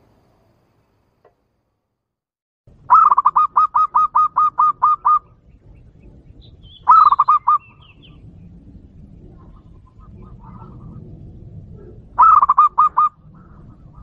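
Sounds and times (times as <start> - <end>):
dove cooing staccato song: 2.8 - 8.3, 9.2 - 14.0
faint high bird chirps: 2.9 - 8.3.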